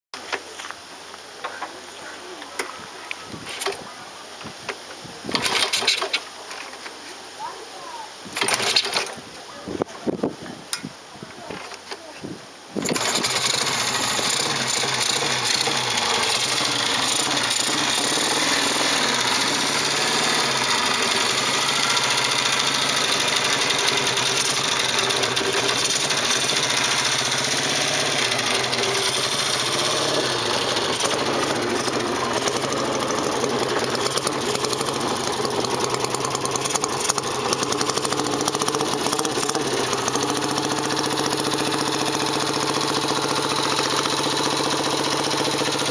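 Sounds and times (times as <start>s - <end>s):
motorcycle engine idling: 12.8s - 45.9s.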